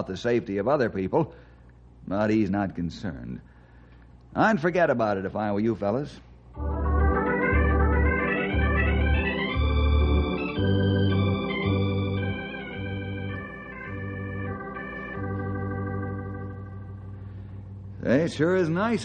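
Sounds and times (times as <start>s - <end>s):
organ music: 6.6s - 19.0s.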